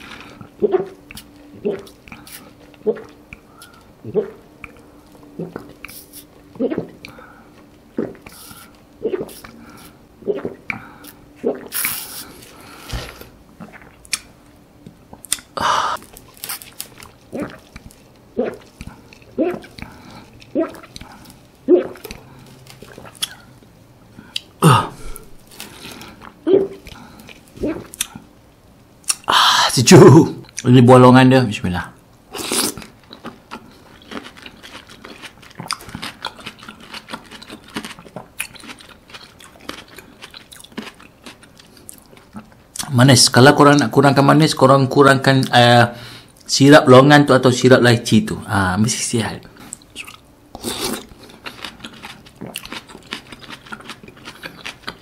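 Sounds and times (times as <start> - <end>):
person chewing soft fruit: 0.0 - 28.4, 29.0 - 29.4, 32.3 - 42.9, 49.5 - 55.0
gulps of swallowing: 4.0 - 4.4, 6.6 - 7.2, 24.6 - 25.4.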